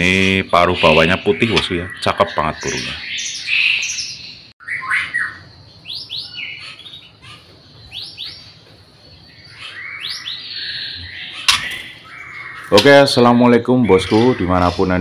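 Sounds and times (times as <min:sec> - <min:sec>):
bird giving harsh rattling calls: 0:09.5 - 0:13.2.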